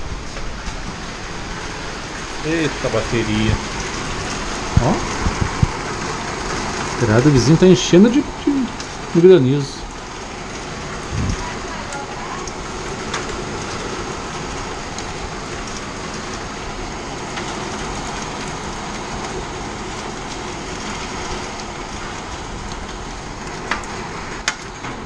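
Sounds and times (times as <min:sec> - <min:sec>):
heavy rain and hail rush: 0:00.0 - 0:25.0
hailstones ticking on metal: 0:00.3 - 0:25.0.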